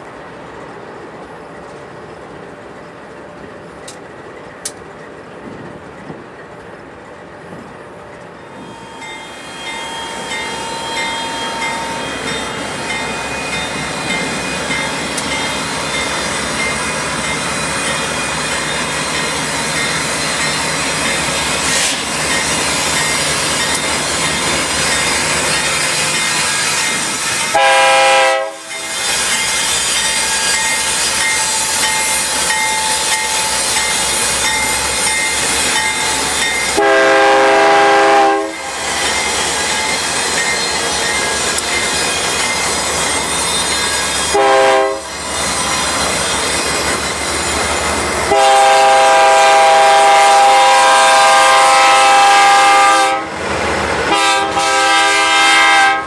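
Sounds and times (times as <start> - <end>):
diesel locomotive engine: 0.0 - 56.0
train wheels on rails: 0.0 - 56.0
train horn blast: 27.5 - 28.8, 36.7 - 38.6, 44.3 - 45.1, 48.3 - 53.4, 54.1 - 56.0.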